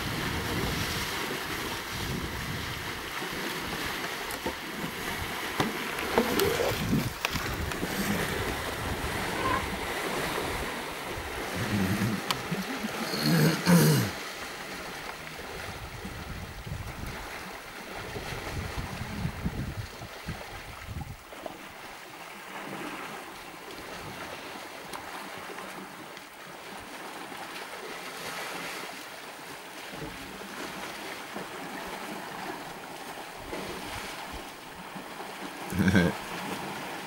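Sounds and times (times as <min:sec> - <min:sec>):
wind rumble on microphone: 0:00.0 - 0:03.9, 0:06.1 - 0:12.2, 0:15.4 - 0:21.3
elephants splashing in water: 0:00.0 - 0:37.0.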